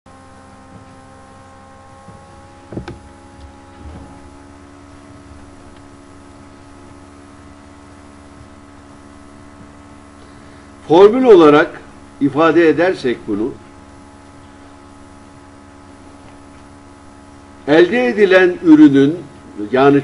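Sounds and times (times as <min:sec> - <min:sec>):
low electrical hum: 0:00.1 - 0:20.0
steady tones: 0:00.1 - 0:20.0
faint rustle: 0:00.4 - 0:10.9.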